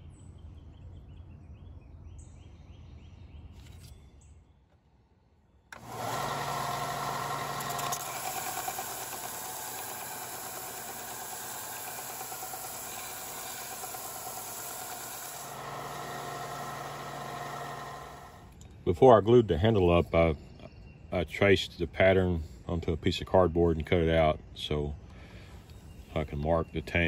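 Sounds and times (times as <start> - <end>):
belt sander motor hum: 5.7 - 18.6
sanding noise: 8.0 - 18.2.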